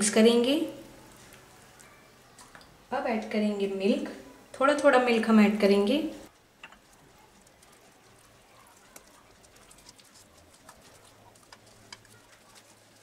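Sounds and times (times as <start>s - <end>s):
whisk stirring thick batter: 6.3s - 13.0s
whisk wires clicking on bowl: 6.3s - 13.0s.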